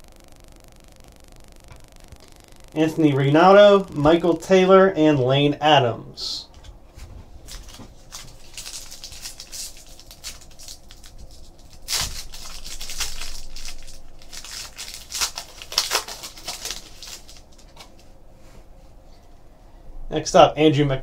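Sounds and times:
wrapper crinkling: 0:07.4 - 0:18.0
foil pack tearing: 0:07.5 - 0:18.0.

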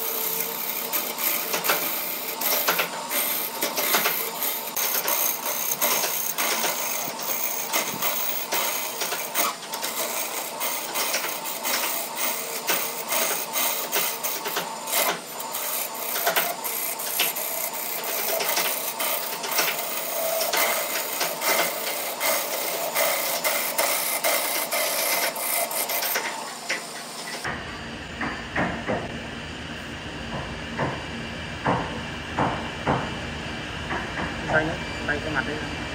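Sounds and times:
lathe tool scraping wood: 0:00.0 - 0:27.5.

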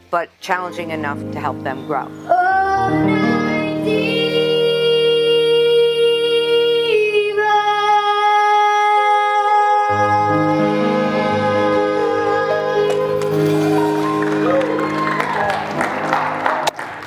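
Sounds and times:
woman singing long held notes: 0:02.2 - 0:13.6
low instrumental accompaniment: 0:09.9 - 0:16.9.

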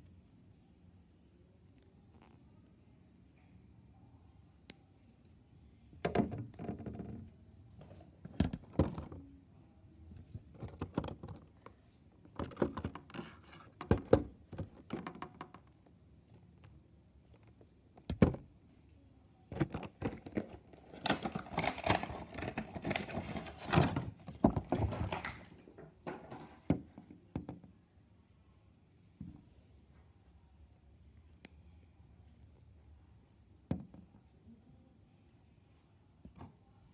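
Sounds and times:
plastic and cardboard rustling: 0:10.2 - 0:15.5, 0:19.6 - 0:26.9.

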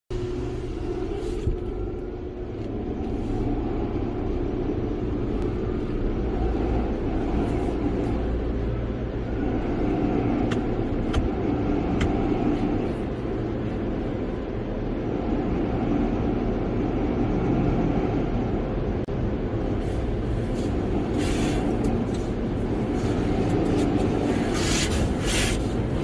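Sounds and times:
car wash machinery rumbling: 0:00.1 - 0:26.0.

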